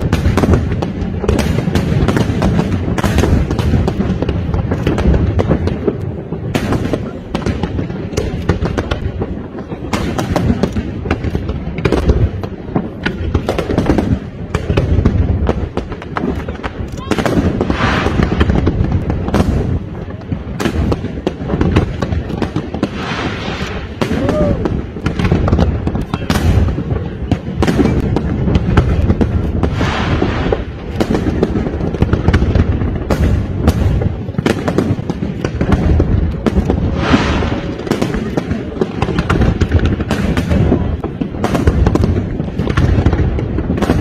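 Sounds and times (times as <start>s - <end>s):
fireworks bursts and booms: 0.0s - 44.0s
fireworks crackling: 0.0s - 44.0s.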